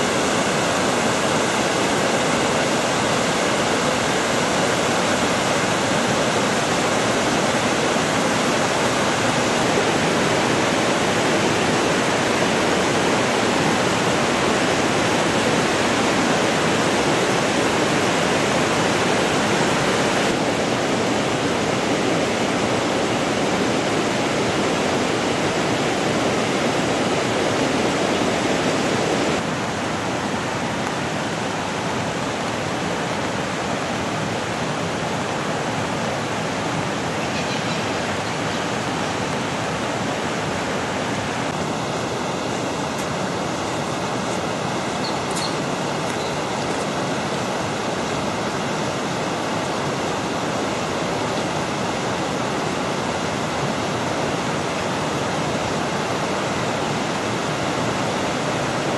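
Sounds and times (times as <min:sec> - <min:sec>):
river rushing over rapids: 0:00.0 - 0:58.9.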